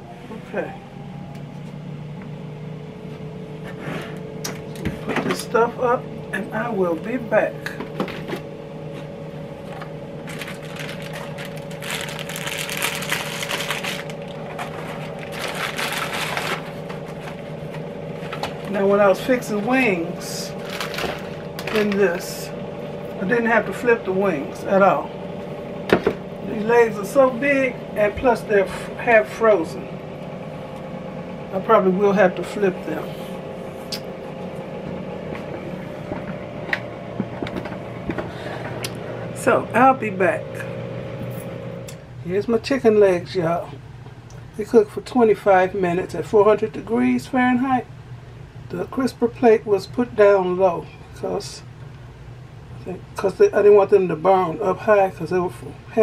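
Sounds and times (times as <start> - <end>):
air fryer humming: 0.0 - 56.0
bag crinkling: 10.2 - 18.7, 20.5 - 22.0
cardboard box folding: 10.3 - 17.4.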